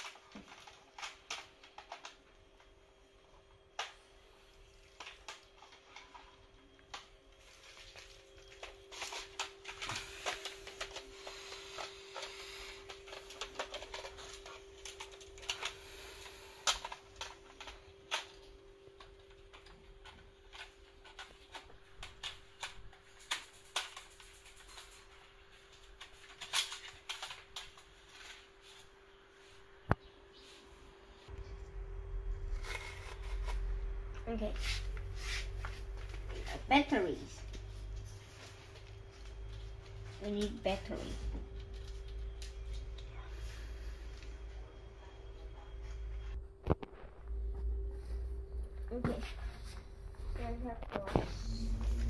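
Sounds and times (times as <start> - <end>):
faint hum: 0.0 - 52.0
plastic toy gun clicks and rattles: 26.1 - 27.8.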